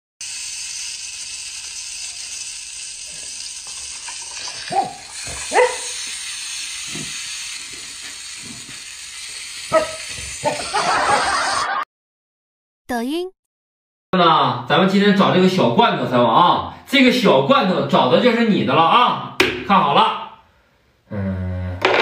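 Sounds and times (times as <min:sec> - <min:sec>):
steady hiss: 0:00.2 - 0:11.1
dog barking: 0:04.7 - 0:06.0, 0:09.7 - 0:10.7.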